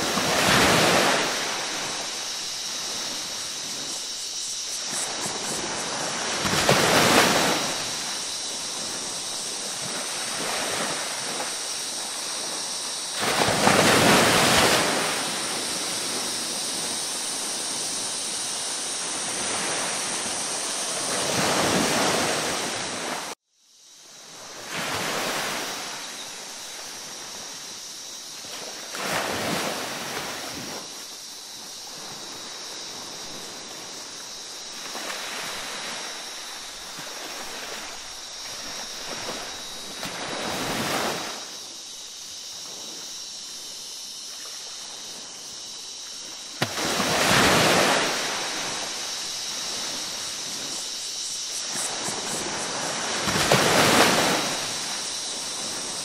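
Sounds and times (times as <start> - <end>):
ocean waves washing in: 0.0 - 23.4, 24.3 - 56.0.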